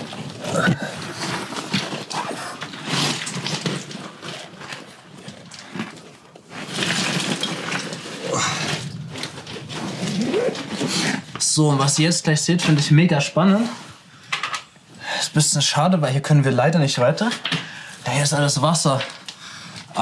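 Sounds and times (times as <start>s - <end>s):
jacket scraping against rock: 0.0s - 11.4s.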